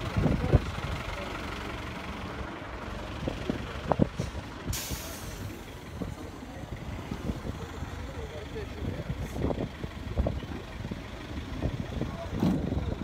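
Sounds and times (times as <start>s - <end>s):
bus engine running: 0.0s - 13.0s
street traffic: 0.0s - 13.0s
air brakes hissing: 4.2s - 5.7s.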